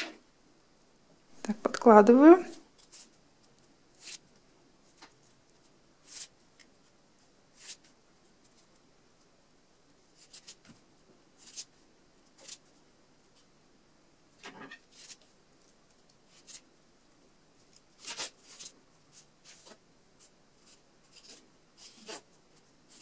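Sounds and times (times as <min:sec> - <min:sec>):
rustles of handling beaded wire: 0:17.5 - 0:23.0.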